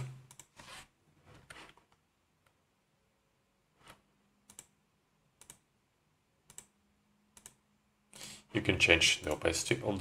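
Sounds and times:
computer mouse clicks: 0:00.0 - 0:00.6, 0:03.9 - 0:04.8, 0:05.4 - 0:05.7, 0:06.5 - 0:06.8, 0:07.4 - 0:07.6.

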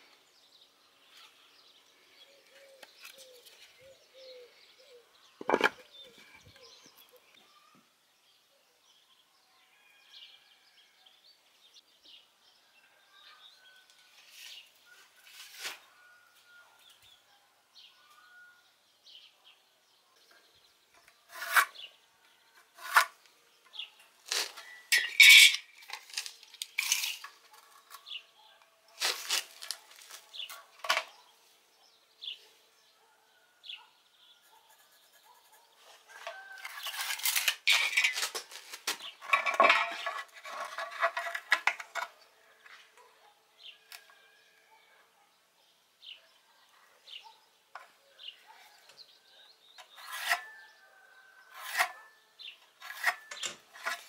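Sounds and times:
measuring tools clacking on wood: 0:05.4 - 0:05.9, 0:24.3 - 0:28.1, 0:52.8 - 0:54.0
scraping rattle: 0:24.4 - 0:26.2, 0:39.1 - 0:42.0.

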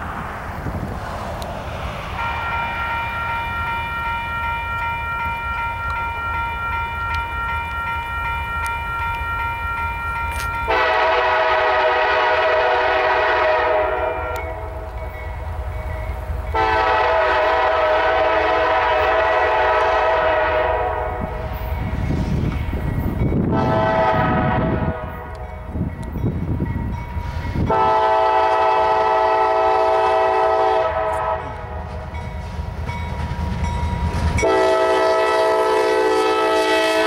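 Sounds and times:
freight train rumbling by: 0:00.0 - 0:37.0
locomotive horn blasts: 0:02.2 - 0:14.9, 0:16.5 - 0:21.4, 0:23.4 - 0:25.6, 0:27.6 - 0:31.8, 0:34.4 - 0:37.0.

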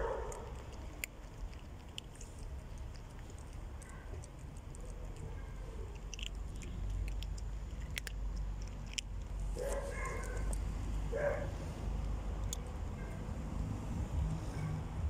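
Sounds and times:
cat crunching dry kibble: 0:00.0 - 0:13.4
low rumble: 0:10.3 - 0:15.0.

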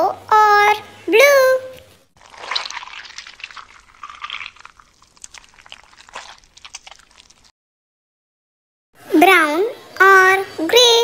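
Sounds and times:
slime squelching: 0:02.1 - 0:07.5.

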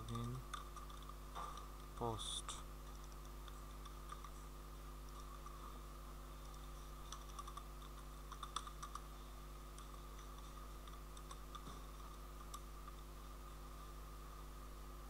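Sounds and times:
steady background hum: 0:00.0 - 0:15.0
keyboard keys clicking: 0:06.4 - 0:09.1.

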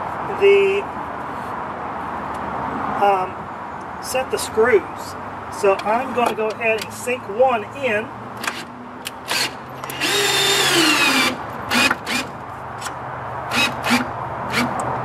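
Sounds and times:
power drill driving a screw: 0:08.4 - 0:12.3, 0:13.5 - 0:14.8.

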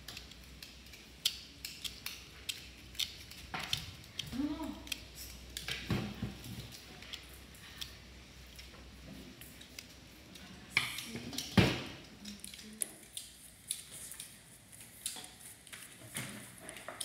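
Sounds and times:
knife scraping nut skins: 0:00.0 - 0:05.6.

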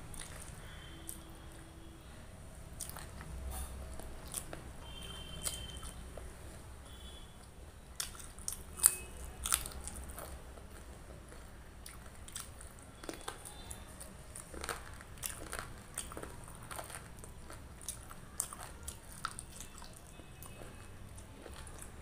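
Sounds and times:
chewing: 0:00.0 - 0:01.8, 0:02.7 - 0:22.0
crunchy bites: 0:08.0 - 0:22.0.

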